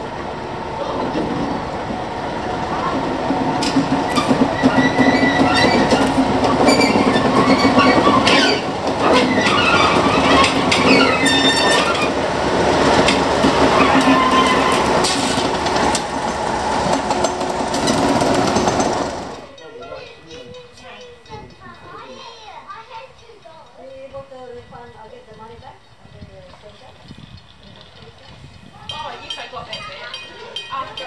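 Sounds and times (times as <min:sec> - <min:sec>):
wheels squealing on rails: 0:00.0 - 0:19.7
wheels clicking over rail joints: 0:00.0 - 0:24.3
train engine hum: 0:00.0 - 0:31.0.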